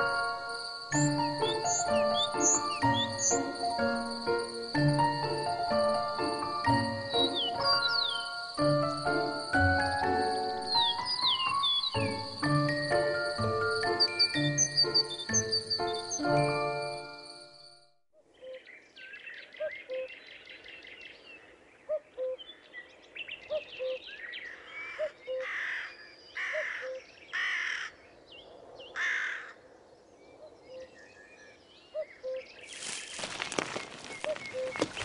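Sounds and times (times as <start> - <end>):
high bird chirps and trills: 0.0 - 5.3, 6.2 - 17.8, 30.4 - 35.0
harsh bird calls: 0.9 - 4.9, 7.1 - 8.8, 10.1 - 16.4, 30.3 - 35.0.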